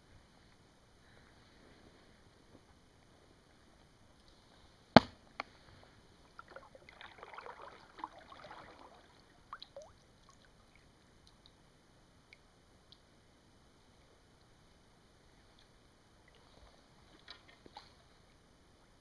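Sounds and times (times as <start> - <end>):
faint water drips: 6.2 - 14.7, 15.3 - 19.0
paddle splashing and dripping: 6.3 - 11.5.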